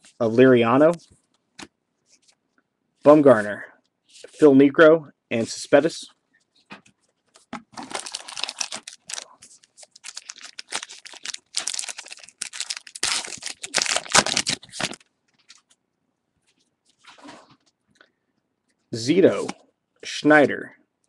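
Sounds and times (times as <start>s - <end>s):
plastic wrapper crinkling: 7.8s - 15.8s.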